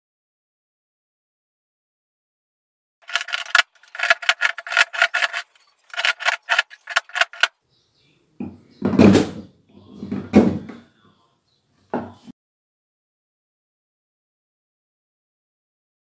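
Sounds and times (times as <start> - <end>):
chisel scraping into gypsum: 3.0 - 7.5.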